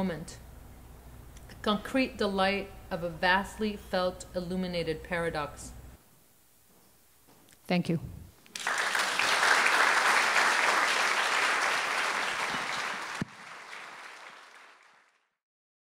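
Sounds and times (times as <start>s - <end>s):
audience applauding: 8.5s - 15.3s.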